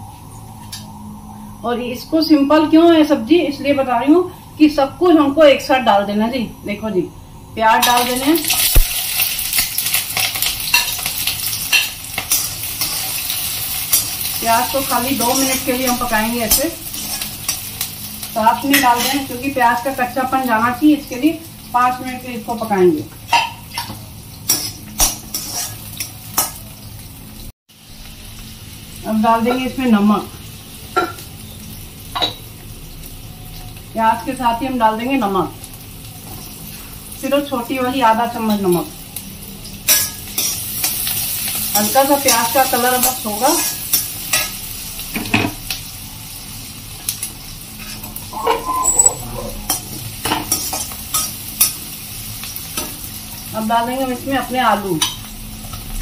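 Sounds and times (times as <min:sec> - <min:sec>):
onions sizzling in hot oil: 0:01.6 - 0:48.8, 0:49.6 - 0:56.0
metal spatula scraping a pan: 0:24.5 - 0:25.8, 0:47.8 - 0:51.8.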